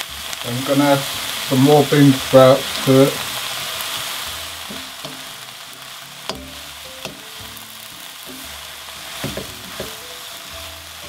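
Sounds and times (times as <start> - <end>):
vegetables sizzling in a wok: 0.0 - 11.0
wooden spatula knocking on pan: 4.7 - 5.3, 6.3 - 7.4, 9.2 - 10.0.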